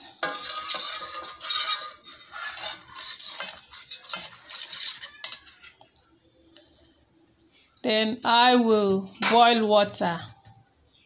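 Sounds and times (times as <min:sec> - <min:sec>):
metal spoon scraping a steel pot: 0:00.0 - 0:05.8.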